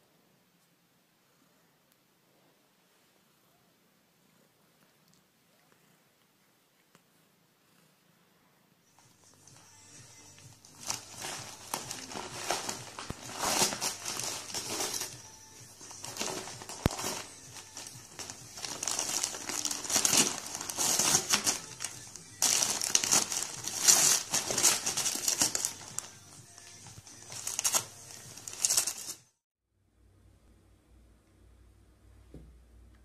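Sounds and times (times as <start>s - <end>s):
crinkling rustling noise: 10.4s - 29.2s.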